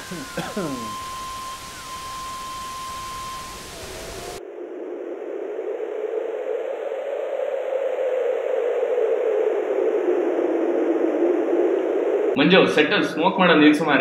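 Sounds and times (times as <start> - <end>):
video static hiss: 0.0 - 4.4
rushing droning sound effect: 0.0 - 12.9.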